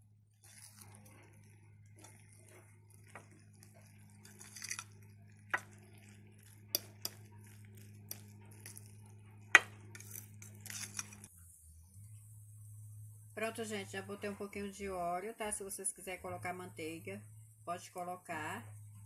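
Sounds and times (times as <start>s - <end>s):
fork scraping batter in bowl: 0.4s - 11.3s.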